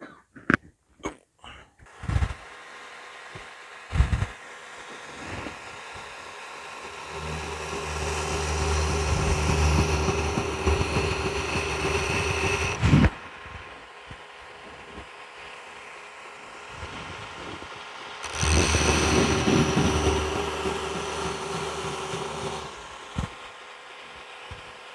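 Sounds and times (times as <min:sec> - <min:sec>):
belt grinder motor hum: 0:01.9 - 0:24.9.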